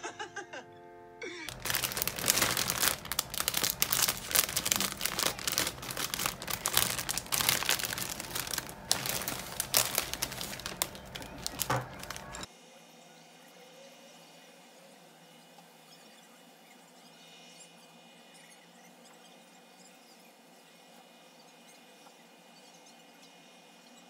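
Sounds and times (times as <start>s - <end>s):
plastic bag crinkling: 1.5s - 12.5s.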